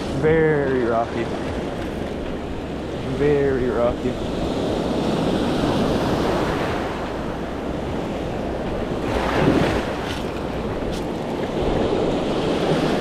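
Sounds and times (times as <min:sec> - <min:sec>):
small waves breaking on sand: 0:00.0 - 0:13.0
wind on microphone: 0:03.7 - 0:13.0.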